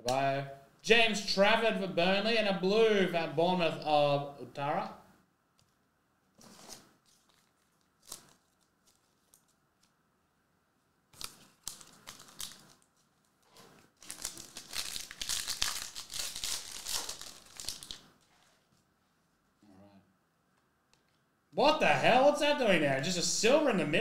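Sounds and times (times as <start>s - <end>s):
foil pack crinkling and tearing: 6.4s - 9.9s, 11.1s - 13.0s, 13.8s - 18.1s.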